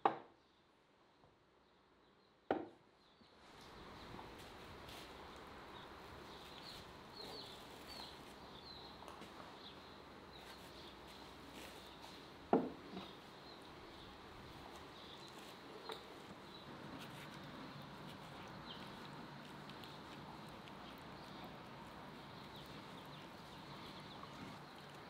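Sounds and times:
small birds chirping: 1.6 - 25.0
clay cup knocking on wooden table: 12.5 - 12.8.

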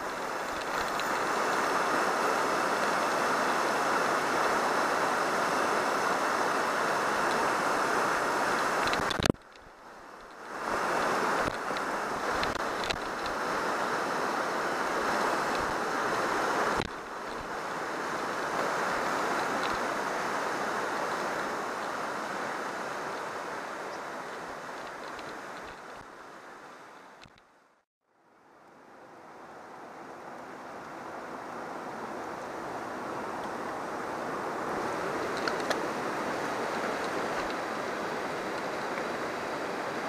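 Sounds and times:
river rapids rushing: 0.0 - 27.2, 29.0 - 40.0.

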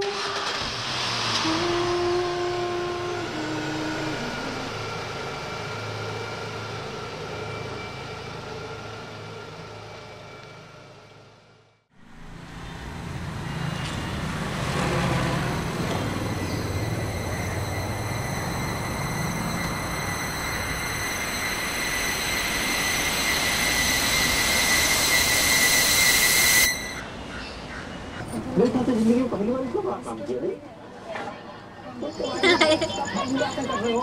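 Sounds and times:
road traffic rumble: 0.0 - 24.7.

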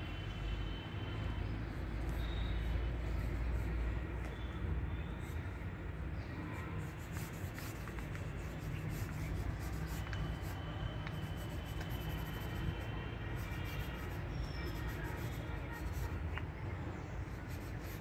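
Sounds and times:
pen scratching on paper: 6.6 - 16.4, 17.3 - 18.0.

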